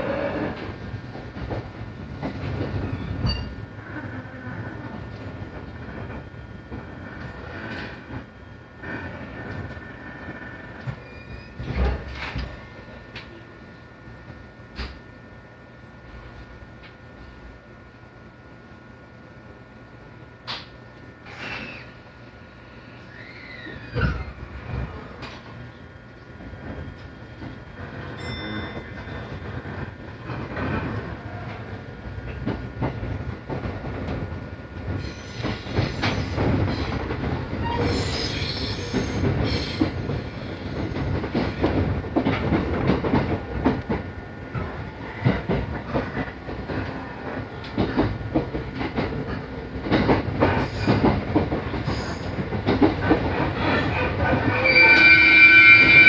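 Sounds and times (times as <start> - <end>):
train rumbling on rails: 0.0 - 56.0
high ringing wheel squeal: 3.0 - 3.6, 11.0 - 11.6, 28.2 - 29.3, 54.5 - 56.0.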